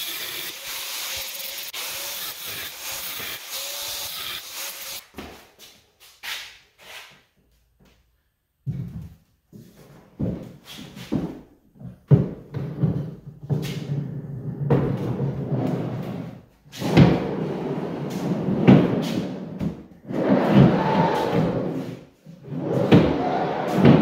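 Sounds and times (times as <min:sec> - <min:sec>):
drawer rolling on tracks: 0:12.8 - 0:24.0.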